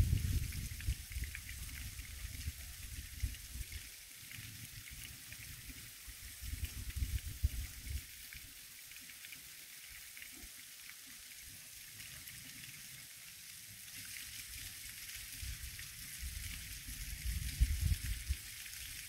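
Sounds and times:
wind buffeting microphone: 0.0 - 3.6, 6.4 - 8.0, 16.2 - 18.4
water trickling into pool: 0.0 - 19.0.

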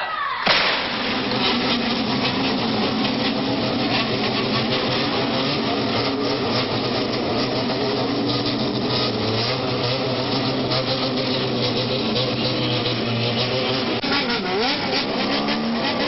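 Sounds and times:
motorcycle engines running: 0.8 - 16.0.

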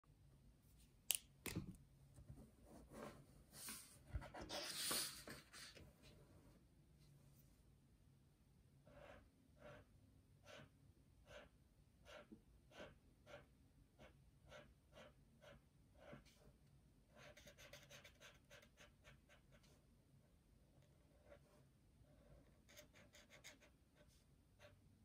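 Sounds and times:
marker strokes on paper: 3.6 - 5.8.

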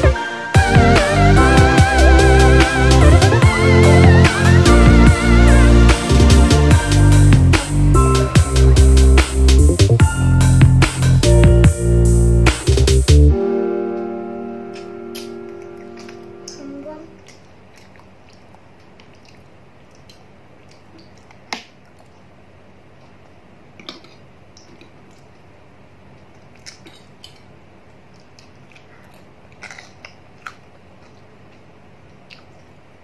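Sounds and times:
soft chewing: 15.6 - 33.0.

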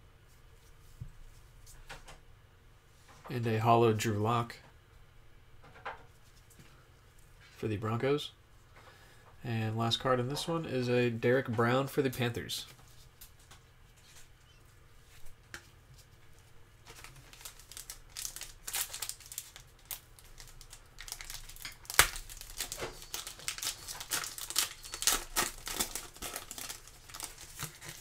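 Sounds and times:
foil wrapper tearing and crinkling: 16.9 - 28.0.

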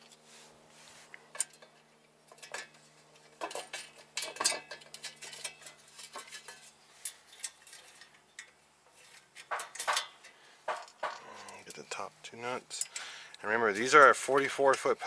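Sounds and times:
steel parts clinking: 1.3 - 12.0, 12.6 - 13.1.

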